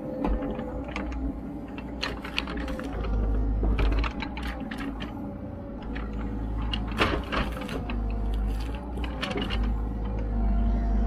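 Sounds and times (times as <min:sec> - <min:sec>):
excavator diesel engine running: 0:00.0 - 0:11.0
log scraping: 0:01.8 - 0:10.2.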